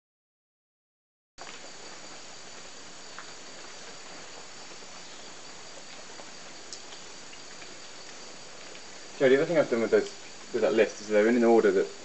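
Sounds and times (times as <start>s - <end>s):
crickets trilling: 1.4s - 12.0s
faint clicks: 5.9s - 8.9s.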